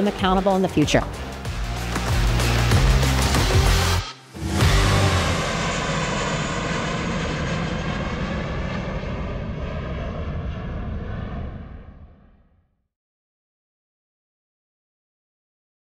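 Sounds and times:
jet engines at takeoff: 2.7 - 12.7.

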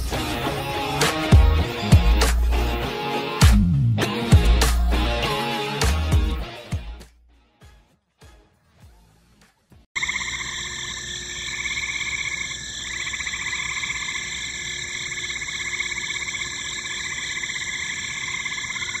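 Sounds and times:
frogs trilling: 10.0 - 19.0.

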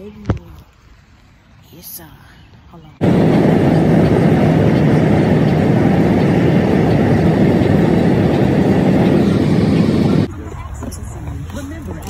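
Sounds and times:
road and tyre noise inside car: 3.0 - 12.0.

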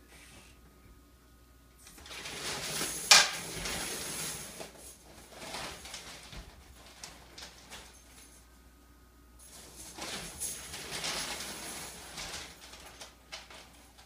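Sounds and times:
raffle entries rustling in plastic drum: 9.4 - 14.0.

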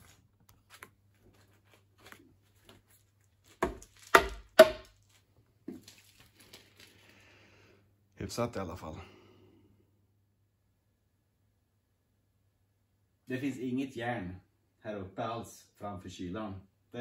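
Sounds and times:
sharp knocks on plastic: 3.6 - 4.9.

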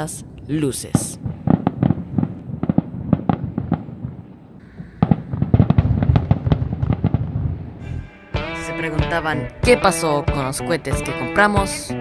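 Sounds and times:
fireworks bangs and crackles: 0.8 - 7.8.

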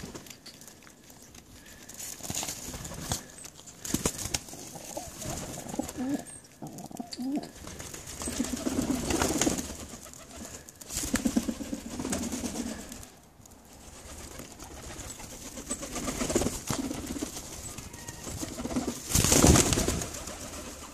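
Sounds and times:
wings fluttering: 0.0 - 20.9
pigeons cooing: 2.7 - 13.1.

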